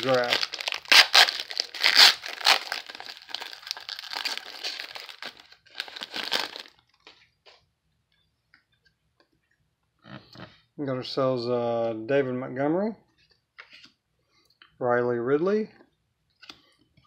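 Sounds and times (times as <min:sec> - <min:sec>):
foil wrapper crinkling: 0:00.0 - 0:07.2.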